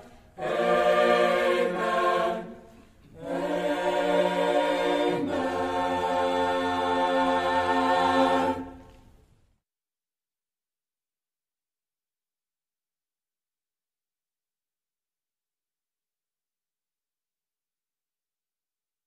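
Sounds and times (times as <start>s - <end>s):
choir singing held chords: 0.0s - 8.9s.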